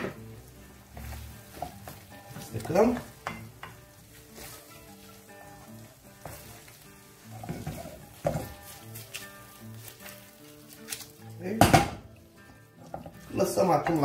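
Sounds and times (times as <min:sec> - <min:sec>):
wooden spatula scraping a pan: 0:00.0 - 0:10.9
background music: 0:00.0 - 0:14.0
food sizzling in a frying pan: 0:00.0 - 0:14.0.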